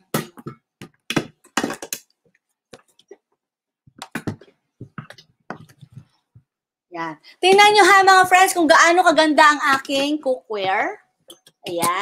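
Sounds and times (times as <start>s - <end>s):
items knocking and clattering on table: 0.0s - 6.5s, 9.7s - 12.0s.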